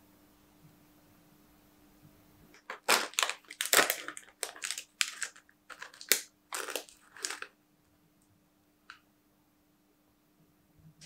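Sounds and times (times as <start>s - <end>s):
plastic snack packet crinkling: 2.6s - 7.6s.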